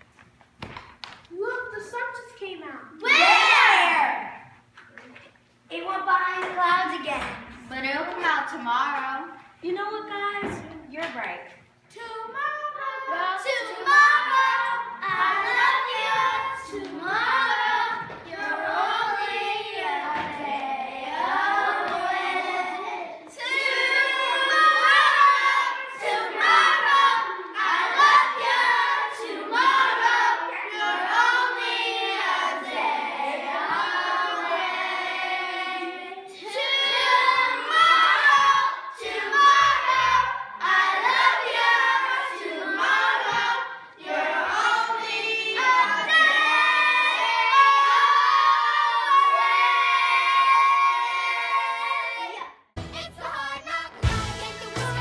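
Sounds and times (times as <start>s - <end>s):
children singing unaccompanied: 12.7s - 52.5s.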